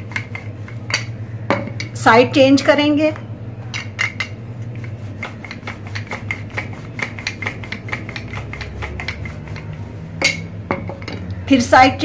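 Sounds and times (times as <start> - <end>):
rolling pin rubbing on dough: 0.0 - 1.2, 4.4 - 10.9.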